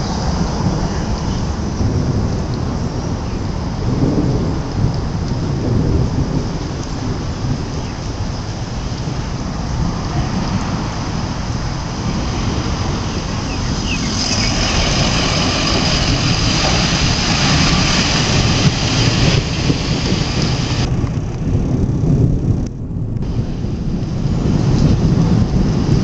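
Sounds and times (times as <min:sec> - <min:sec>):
vehicle engine rumbling: 0:00.0 - 0:26.0
hiss: 0:13.8 - 0:20.9.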